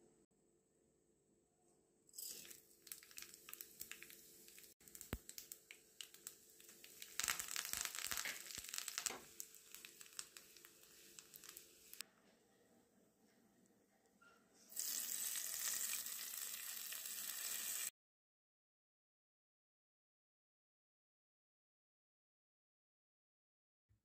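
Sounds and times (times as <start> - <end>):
leaves sizzling in oil: 2.2 - 12.0, 14.7 - 17.9
seeds popping in hot oil: 2.2 - 12.0, 14.7 - 17.9.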